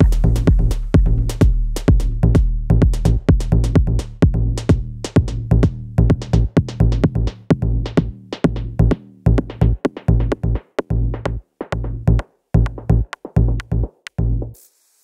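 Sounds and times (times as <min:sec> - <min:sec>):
deep bass notes: 0:00.0 - 0:14.6
electronic drum beat: 0:00.0 - 0:14.6.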